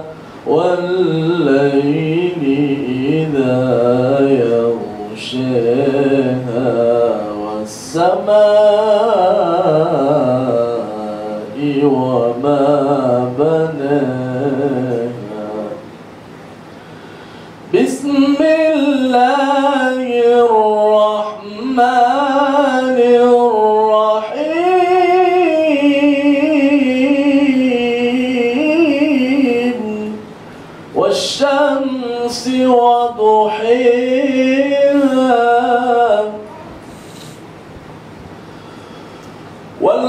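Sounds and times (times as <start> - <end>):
man reciting melodically: 0.0 - 15.9, 17.7 - 30.3, 30.9 - 36.6, 39.7 - 40.0
short breaths: 16.7 - 17.7, 36.8 - 37.6, 38.4 - 39.6.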